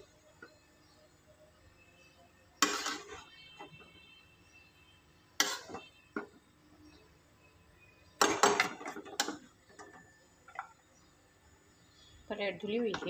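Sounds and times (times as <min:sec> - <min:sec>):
metal spoon knocking and scraping pot: 0:02.6 - 0:03.2, 0:08.2 - 0:10.6.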